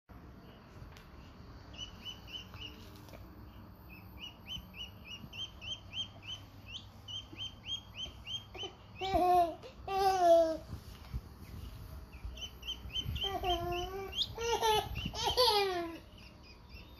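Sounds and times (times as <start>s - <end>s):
duckling peeping: 1.2s - 9.7s, 11.3s - 16.9s.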